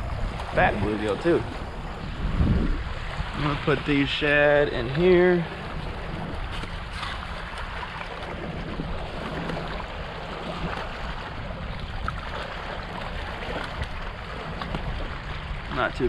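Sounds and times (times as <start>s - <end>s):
lake water lapping: 0.0s - 16.0s
wind rushing: 1.4s - 4.1s.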